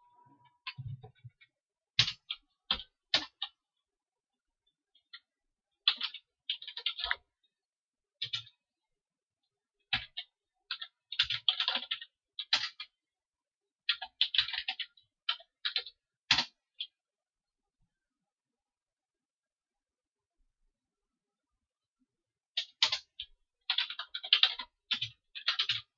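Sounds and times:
computer keyboard typing: 0:00.6 - 0:03.6, 0:05.0 - 0:07.3, 0:08.2 - 0:08.6, 0:09.9 - 0:13.0, 0:13.9 - 0:17.0, 0:22.6 - 0:25.9.

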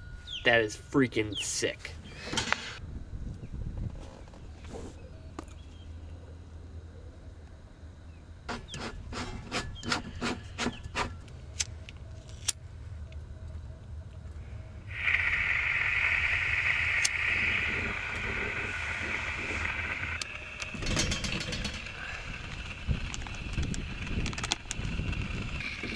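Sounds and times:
gas hissing: 0:14.8 - 0:25.9
sharp metallic clicks: 0:15.0 - 0:18.9.

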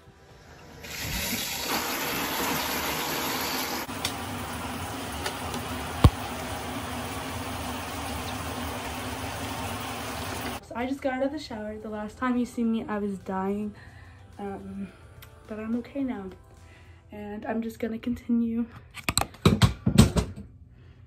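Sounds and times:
shower running: 0:00.5 - 0:10.6.

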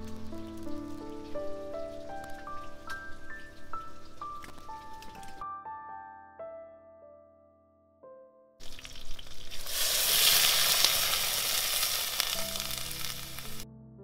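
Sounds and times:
food sizzling in hot oil: 0:00.0 - 0:05.4, 0:08.6 - 0:13.6.

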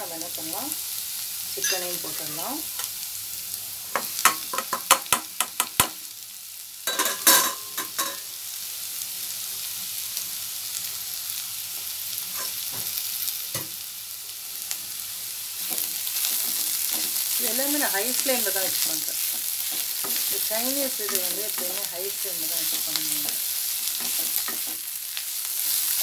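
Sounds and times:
vegetables sizzling in a pan: 0:00.0 - 0:26.0
spatula scraping a pan: 0:12.3 - 0:12.6, 0:15.6 - 0:17.9, 0:18.6 - 0:25.0.

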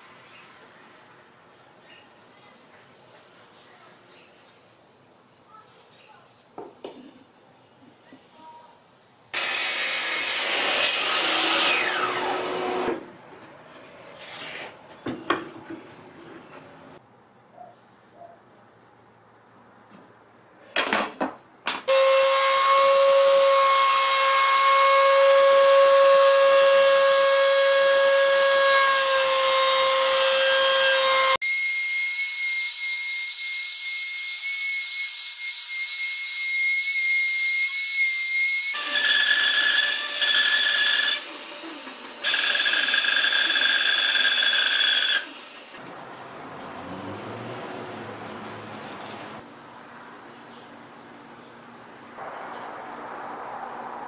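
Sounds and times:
woodworking machine running: 0:38.8 - 0:45.8.

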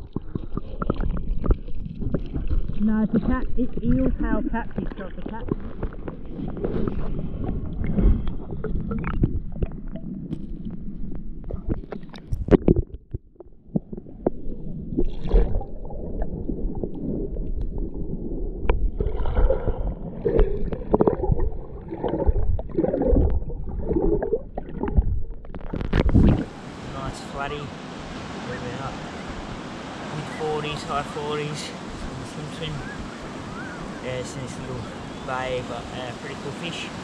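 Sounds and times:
underwater clicks and knocks: 0:00.0 - 0:18.0, 0:18.6 - 0:26.5
underwater sloshing and gurgling: 0:00.0 - 0:37.0.

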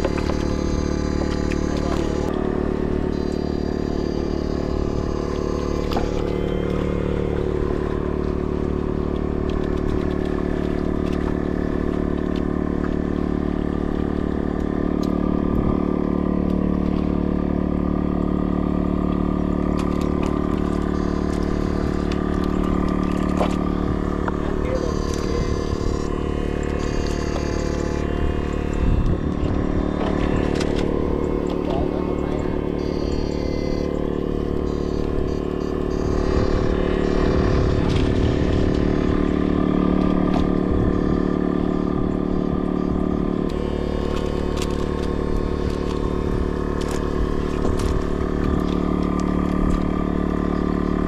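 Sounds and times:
engine-like drone: 0:00.0 - 0:51.0
faint clicks and clatter: 0:43.4 - 0:50.0.

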